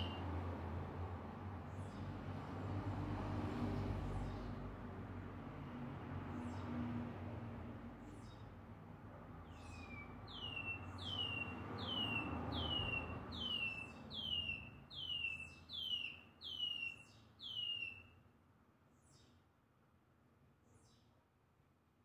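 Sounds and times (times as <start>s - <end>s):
songbird whistling: 9.7s - 18.1s.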